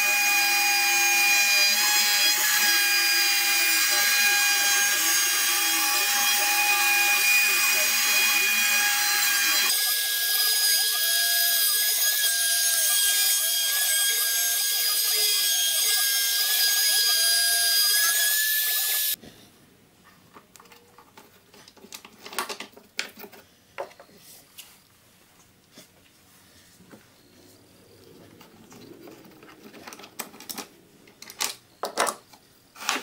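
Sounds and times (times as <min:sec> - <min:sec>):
router spindle whine: 0:00.0 - 0:19.2.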